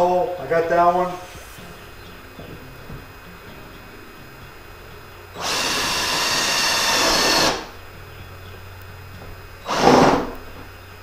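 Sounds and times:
cordless drill boring plastic: 5.4 - 7.7, 9.7 - 10.3.

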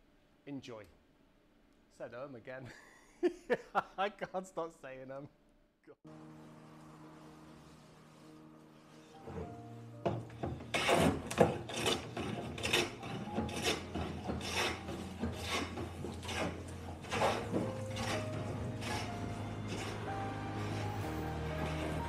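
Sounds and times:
hand plane rasping on wood: 10.3 - 22.0.

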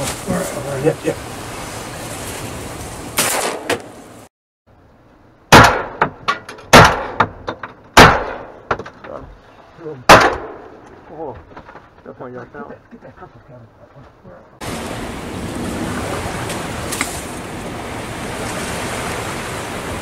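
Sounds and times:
shotgun blasts: 3.2 - 3.8, 5.5 - 6.0, 8.0 - 8.6, 10.1 - 10.7.

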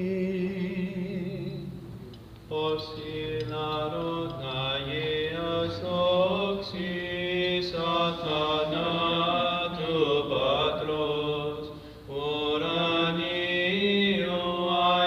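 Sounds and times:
low drone note: 0.0 - 3.4.

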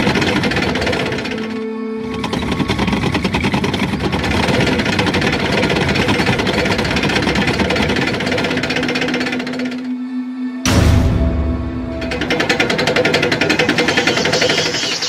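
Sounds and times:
heavy engine clattering: 0.0 - 9.9, 10.7 - 15.0.

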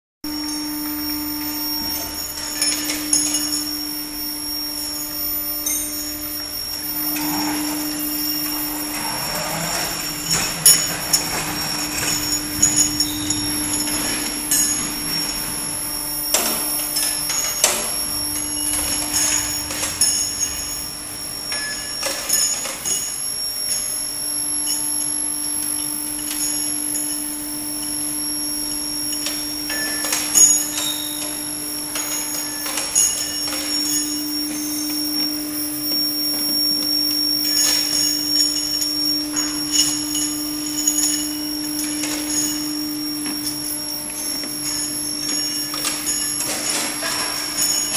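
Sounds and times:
high-pitched whine: 0.2 - 47.9
machine hum: 0.2 - 47.9
metallic clanks and clicks: 7.0 - 20.8, 29.1 - 47.9.

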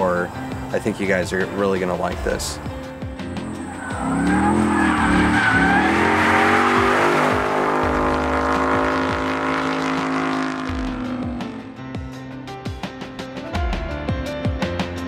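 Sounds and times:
background music with sharp hits: 2.1 - 15.0
car engine at high revs: 3.3 - 11.7
tyre squeal: 3.4 - 9.0.

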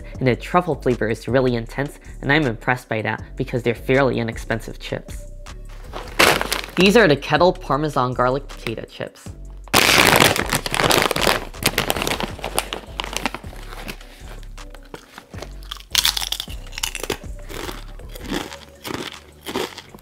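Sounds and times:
chip bag crinkling: 5.9 - 7.0, 9.7 - 20.0
crunchy bites and chewing: 6.0 - 6.8, 9.7 - 14.0, 14.8 - 20.0.

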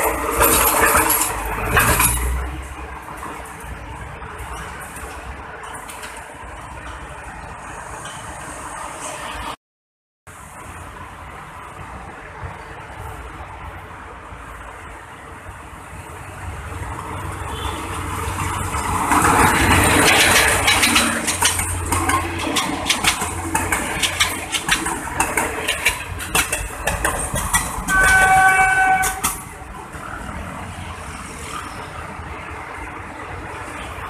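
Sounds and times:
train wheels clacking over rail joints: 0.0 - 3.8, 18.3 - 30.2
diesel locomotive rumble: 0.0 - 9.1, 10.4 - 34.0
train horn: 27.9 - 29.4.

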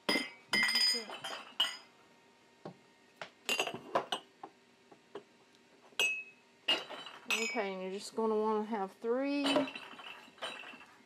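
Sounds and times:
ceramic mugs clinking: 0.0 - 1.9, 3.5 - 4.3, 6.0 - 7.7, 9.4 - 11.0.

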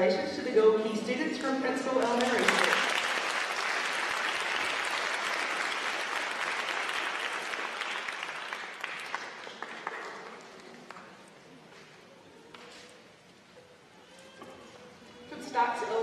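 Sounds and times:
audience applauding: 2.1 - 11.2.

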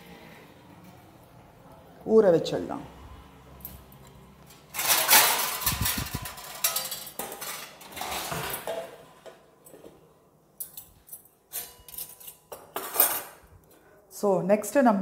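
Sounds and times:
steel plates clattering: 4.5 - 9.3.

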